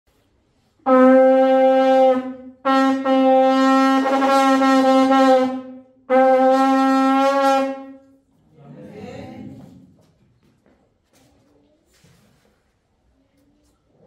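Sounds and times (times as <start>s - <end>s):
long horn blasts: 0.8s - 8.2s.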